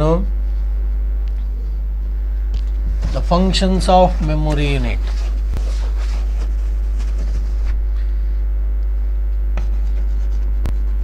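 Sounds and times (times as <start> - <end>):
electrical mains hum: 0.0 - 11.0
chalk tapping and scraping: 9.6 - 11.0.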